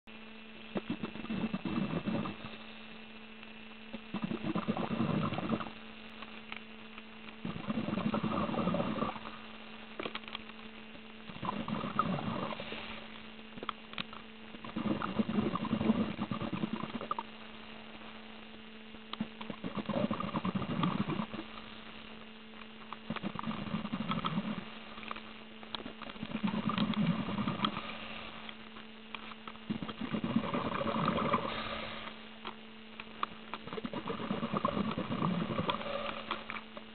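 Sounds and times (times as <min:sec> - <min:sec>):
steady electrical hum: 0:00.0 - 0:36.9
underwater exhaust bubbles: 0:29.7 - 0:31.8.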